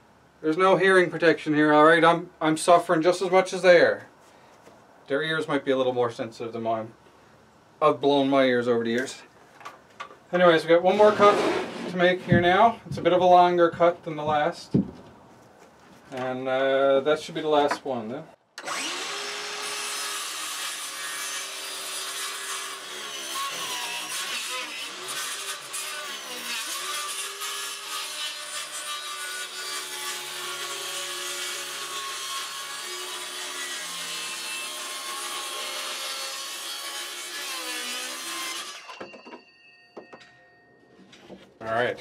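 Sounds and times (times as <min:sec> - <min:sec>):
circular saw cutting wood: 0:18.6 - 0:39.0.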